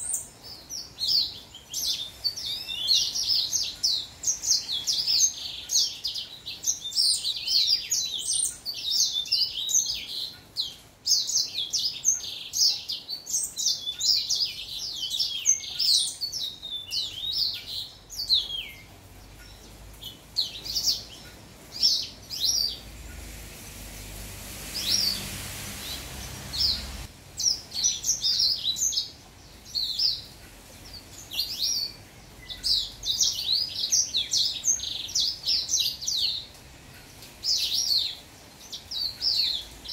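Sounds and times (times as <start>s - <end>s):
soft rushing noise with low rumble: 19.1s - 27.5s.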